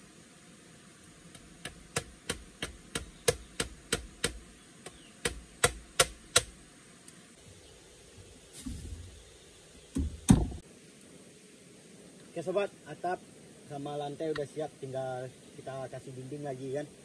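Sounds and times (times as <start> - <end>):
machete chopping bamboo: 1.3 - 6.6.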